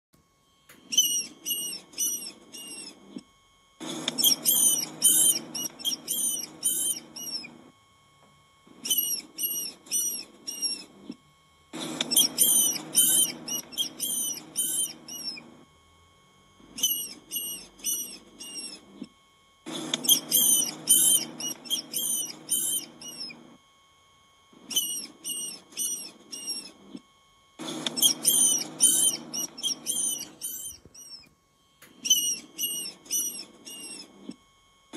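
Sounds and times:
rodent squeaking: 0:00.8 - 0:03.2, 0:03.8 - 0:07.6, 0:08.8 - 0:11.2, 0:11.8 - 0:15.5, 0:16.7 - 0:19.1, 0:19.7 - 0:23.4, 0:24.6 - 0:26.8, 0:27.6 - 0:31.3, 0:31.9 - 0:34.2.

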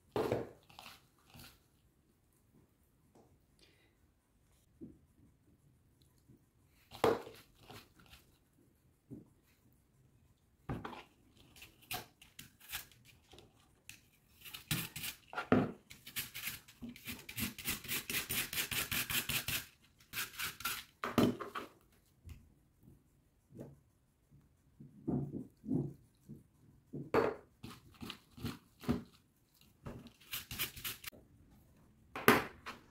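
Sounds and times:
vegetable peeler scraping apple: 0:11.5 - 0:13.3, 0:14.3 - 0:21.0, 0:30.0 - 0:31.1.

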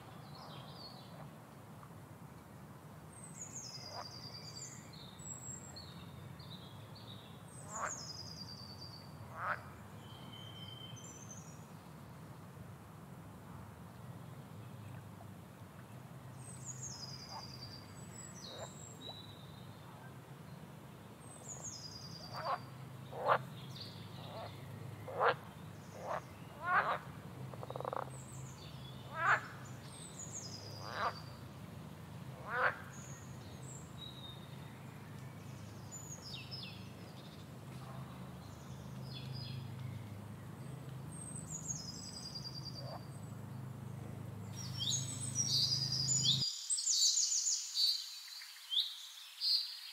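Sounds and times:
birds calling: 0:21.3 - 0:46.4
steady low hum: 0:22.2 - 0:46.4.

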